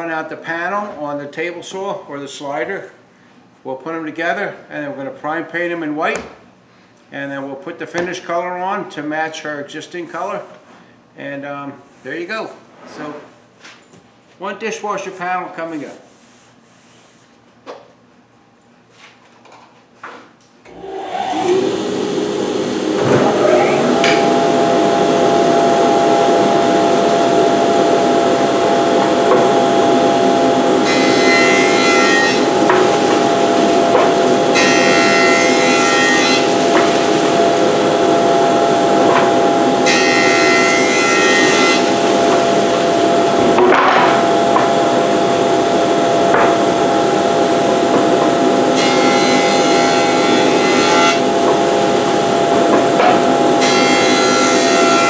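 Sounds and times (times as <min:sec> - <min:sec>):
jointer motor hum: 0:20.7 - 0:55.0
boards cutting hiss: 0:20.8 - 0:45.2.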